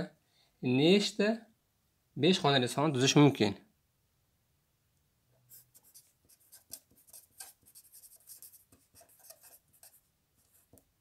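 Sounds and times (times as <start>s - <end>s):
marker pen scratching on paper: 5.5s - 10.9s.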